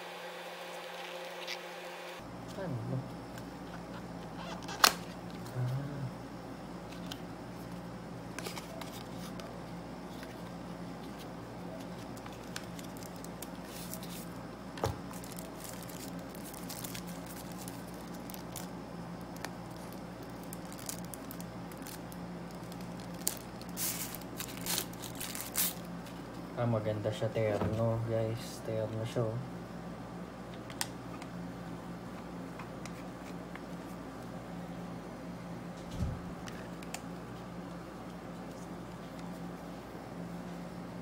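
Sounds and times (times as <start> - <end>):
steady low hum: 0.0 - 41.0
cardboard and tissue paper crinkling: 11.0 - 14.4, 15.0 - 18.7, 19.4 - 25.9.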